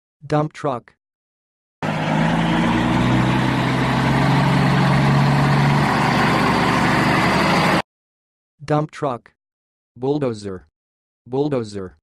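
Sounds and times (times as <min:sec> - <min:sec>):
truck engine running: 0:01.8 - 0:07.8.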